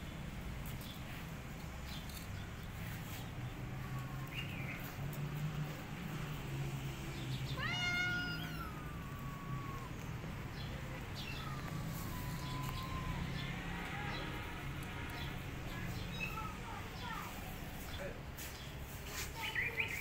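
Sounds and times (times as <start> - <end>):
cat meowing: 7.6 - 10.0.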